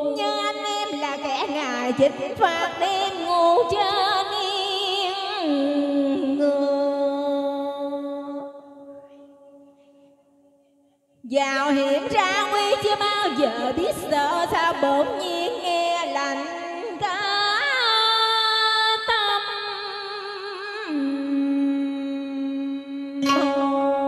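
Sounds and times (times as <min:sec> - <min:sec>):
woman singing opera with vibrato: 0:00.0 - 0:09.0, 0:11.3 - 0:24.0
instrumental backing: 0:23.2 - 0:24.0.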